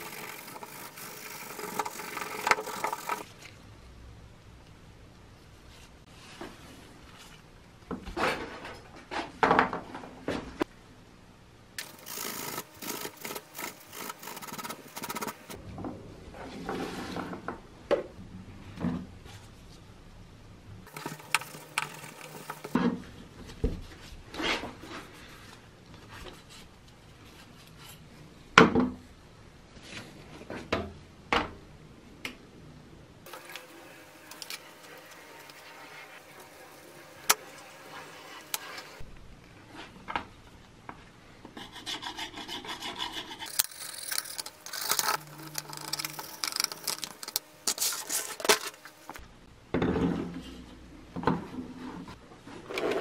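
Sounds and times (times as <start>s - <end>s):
metal parts clicking and knocking: 43.5s - 47.4s.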